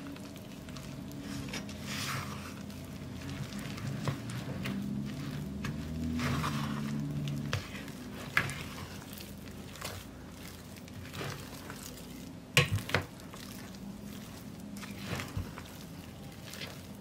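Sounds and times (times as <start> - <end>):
spatula squelching in dough: 0.0 - 17.0.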